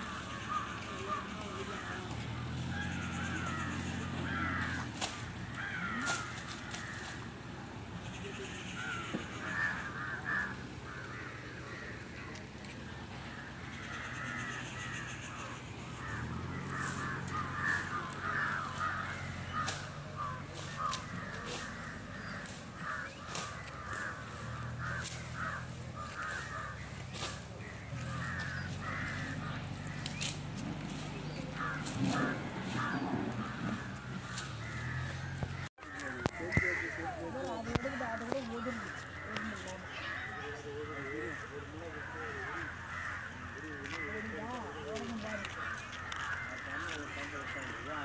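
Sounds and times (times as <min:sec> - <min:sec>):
crows cawing: 0:00.0 - 0:48.0.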